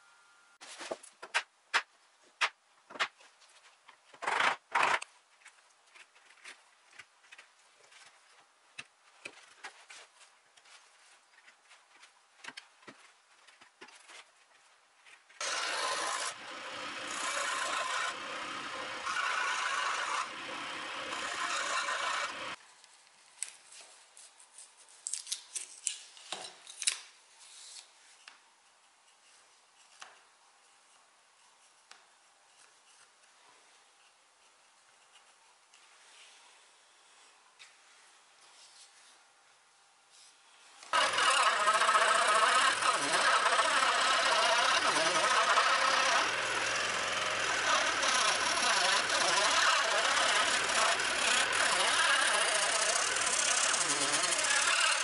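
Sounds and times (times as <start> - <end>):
chisel scraping wood: 15.4 - 22.6, 40.9 - 55.0.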